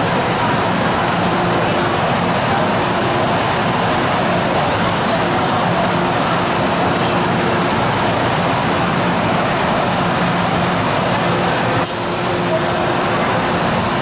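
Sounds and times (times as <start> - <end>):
train equipment humming: 0.0 - 14.0.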